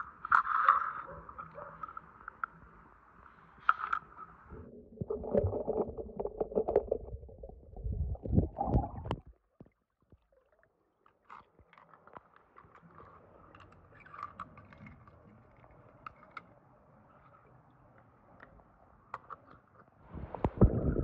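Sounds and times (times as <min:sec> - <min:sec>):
underwater rumbling and sloshing: 0:00.0 - 0:16.4, 0:20.0 - 0:21.0
toy cars clicking on wet stone: 0:11.4 - 0:16.6.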